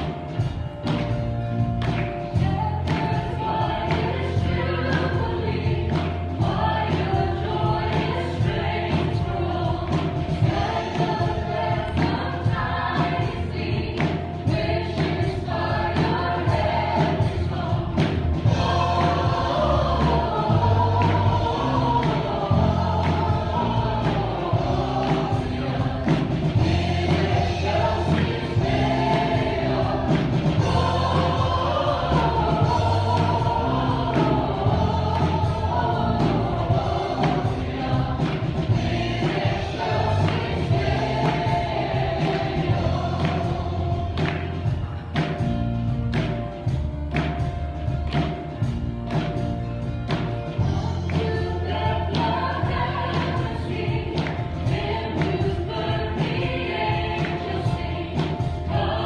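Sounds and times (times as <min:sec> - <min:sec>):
electric bass: 0:15.5 - 0:44.8.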